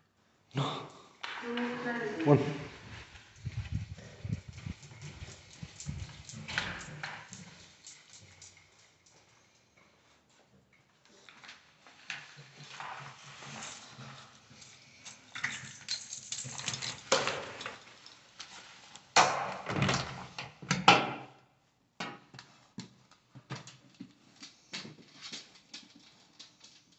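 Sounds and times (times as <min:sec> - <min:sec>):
rustling and handling: 0:01.6 - 0:19.1
dog claws on hard floor: 0:03.2 - 0:09.2.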